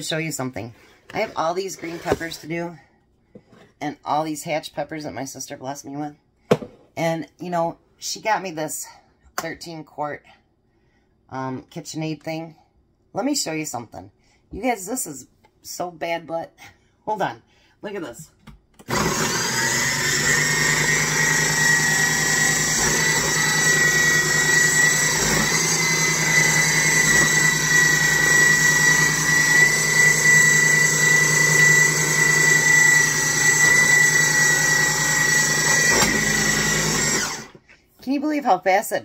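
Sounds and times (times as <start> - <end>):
food processor motor whining: 18.8 - 37.6.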